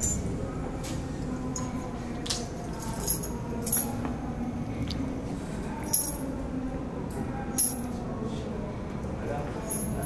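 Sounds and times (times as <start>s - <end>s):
metallic clinks of steel parts: 1.6s - 4.0s, 5.8s - 6.3s, 9.6s - 10.0s.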